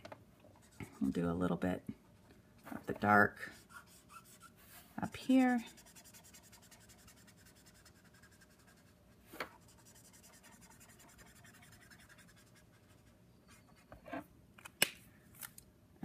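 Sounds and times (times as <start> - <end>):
marker scratching on card: 3.5 - 13.8.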